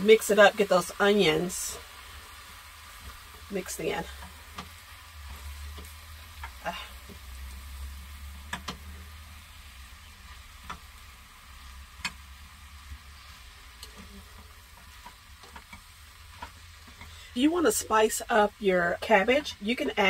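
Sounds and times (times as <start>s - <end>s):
vegetables sizzling in a skillet: 0.0s - 20.0s
utensil clicking against pan: 4.1s - 7.2s, 8.4s - 9.1s, 10.1s - 12.4s, 13.8s - 17.2s.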